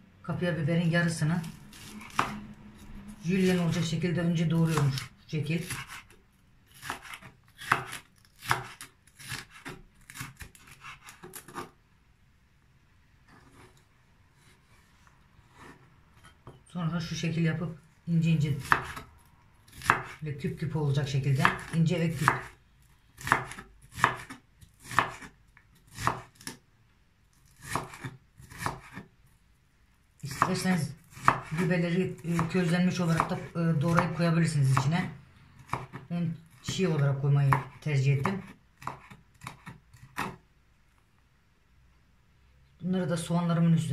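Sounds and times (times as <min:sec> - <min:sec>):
knife chopping on wooden board: 0:01.4 - 0:02.4, 0:04.6 - 0:11.7, 0:18.6 - 0:19.1, 0:19.7 - 0:20.2, 0:21.4 - 0:22.6, 0:23.2 - 0:26.6, 0:27.5 - 0:29.1, 0:30.3 - 0:35.0, 0:35.6 - 0:36.8, 0:37.5 - 0:40.4
knife slicing on wooden board: 0:01.4 - 0:02.9, 0:04.6 - 0:11.8, 0:13.3 - 0:13.8, 0:14.4 - 0:16.4, 0:18.6 - 0:19.1, 0:23.2 - 0:25.3, 0:25.9 - 0:26.6, 0:27.5 - 0:29.1.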